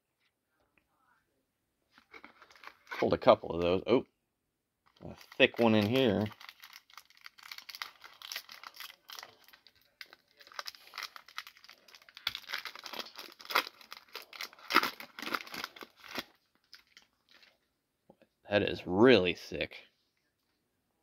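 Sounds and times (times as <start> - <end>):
foil wrapper crinkling and tearing: 4.9 - 17.4.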